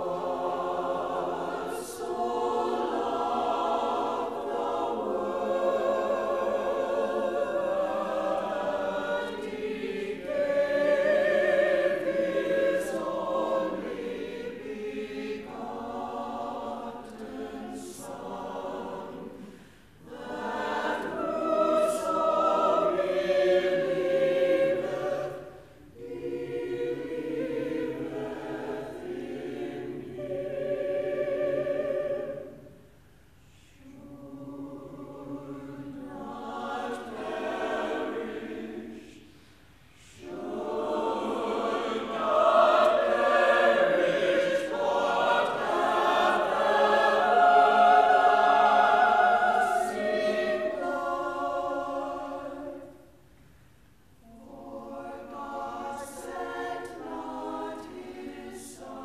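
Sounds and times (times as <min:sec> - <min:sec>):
church choir singing: 0:00.0 - 0:59.0.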